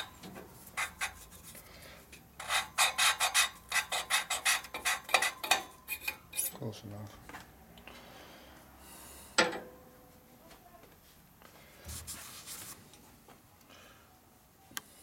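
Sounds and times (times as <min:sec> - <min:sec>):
cloth rag rubbing metal: 0:00.6 - 0:01.6.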